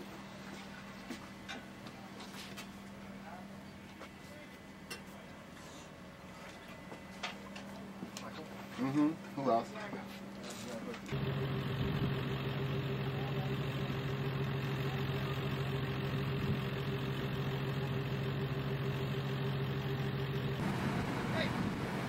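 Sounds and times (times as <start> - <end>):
van engine idling: 11.1 - 22.0.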